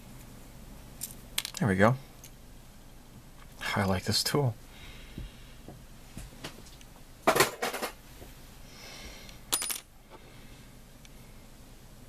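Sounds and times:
brass rod pieces clinking: 9.5 - 9.9.

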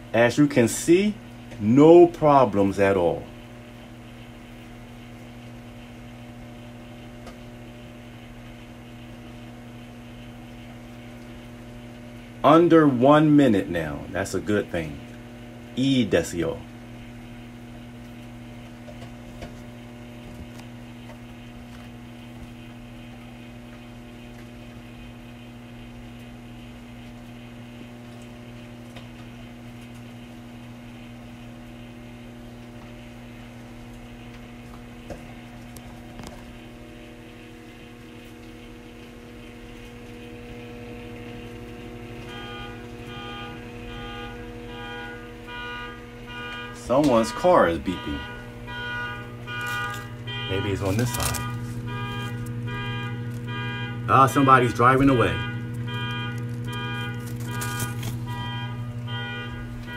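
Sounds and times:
microwave oven humming: 0.0 - 59.9
car beeping: 40.4 - 59.9.

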